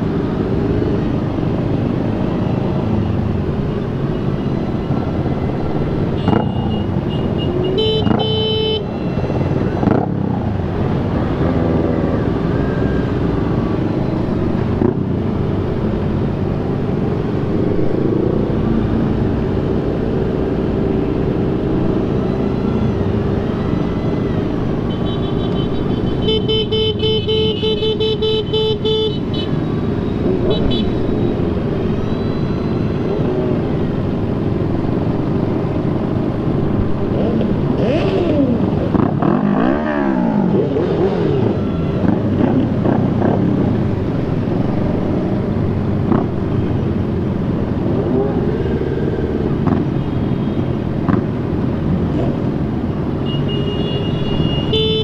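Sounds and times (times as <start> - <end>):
motorcycle engines revving: 0.0 - 55.0
horn tooting: 6.1 - 9.2, 24.8 - 29.6, 53.2 - 55.0.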